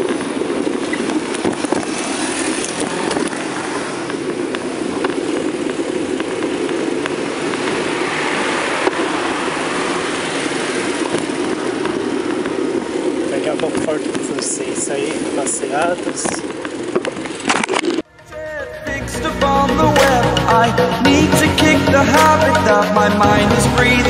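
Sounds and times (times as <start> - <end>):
wind on microphone: 0.0 - 18.1
bicycle tyres on road: 0.0 - 18.2
car passing: 0.0 - 18.7.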